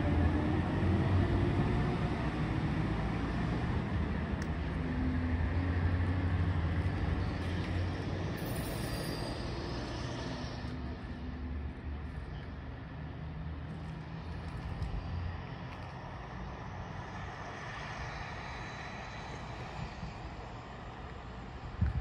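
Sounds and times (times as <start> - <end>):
diesel train rumbling: 0.0 - 15.0.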